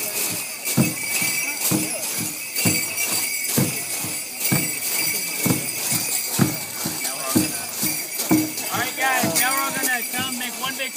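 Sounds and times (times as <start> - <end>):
bells jingling: 0.0 - 10.9
deep drum beating: 0.8 - 9.5.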